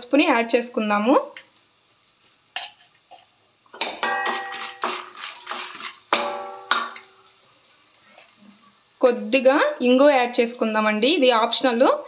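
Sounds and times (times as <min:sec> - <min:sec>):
metal pan ringing: 0:03.8 - 0:05.1, 0:06.1 - 0:07.3
utensil scraping a metal pan: 0:04.1 - 0:06.7.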